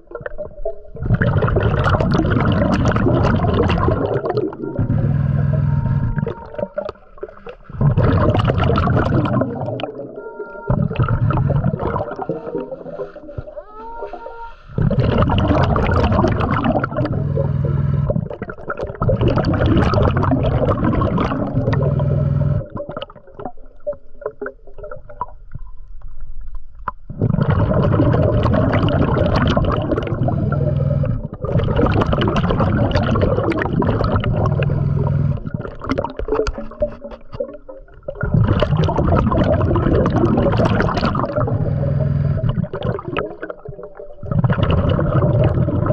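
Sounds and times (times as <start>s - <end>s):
underwater air bubbling: 0.0s - 45.9s
faint short tones: 4.6s - 7.0s, 10.0s - 14.8s.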